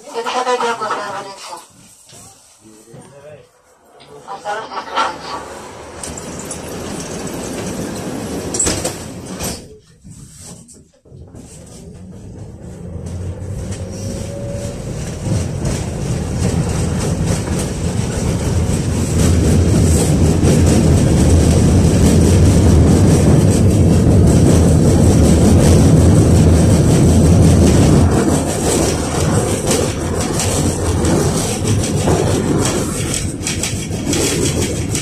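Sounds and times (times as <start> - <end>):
tram wheels rumbling on rails: 0.0 - 35.0.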